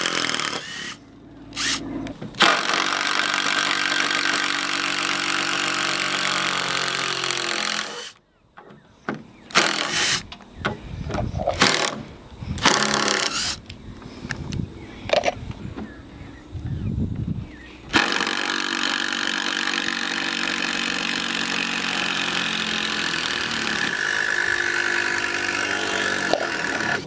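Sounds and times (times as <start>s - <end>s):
power driver driving screw into wood: 0.0s - 1.0s, 1.6s - 1.8s, 2.4s - 8.2s, 9.5s - 10.3s, 11.5s - 12.0s, 12.6s - 13.7s, 17.9s - 27.0s.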